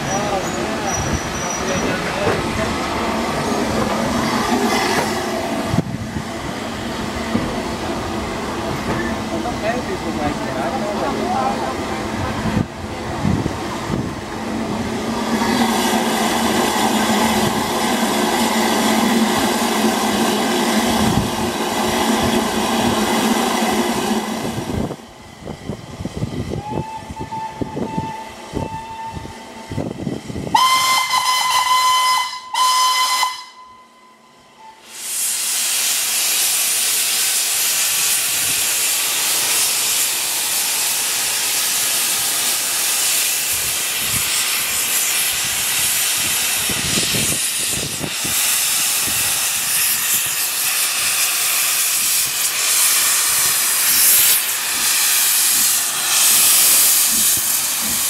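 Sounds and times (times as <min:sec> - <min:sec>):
steam whistle blasts: 0:26.6 - 0:29.4, 0:30.5 - 0:35.3
steam hissing from drain cocks: 0:34.8 - 0:58.0.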